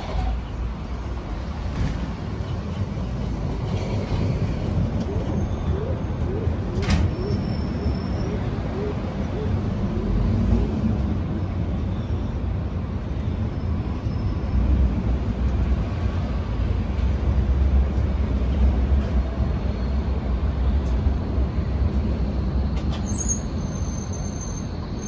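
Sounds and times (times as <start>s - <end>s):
train rumbling on rails: 0.0s - 25.0s
brief high squeal: 22.9s - 25.0s.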